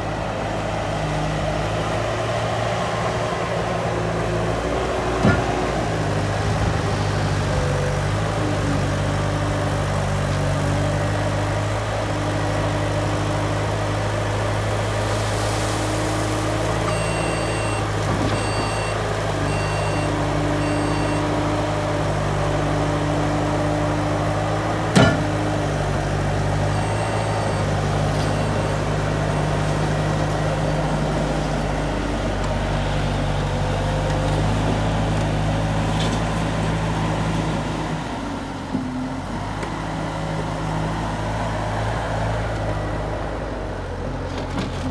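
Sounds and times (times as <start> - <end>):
skid-steer diesel engine running: 0.0 - 44.9.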